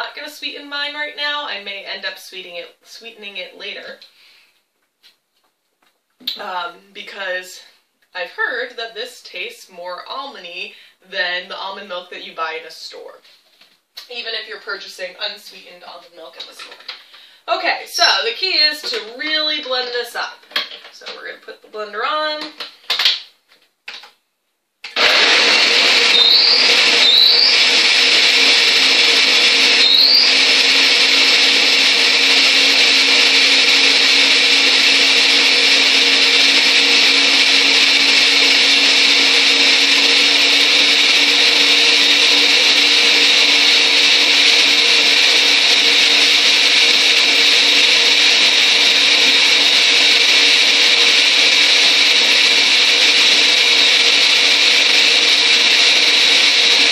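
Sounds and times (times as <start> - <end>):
blender running: 24.9 - 56.9.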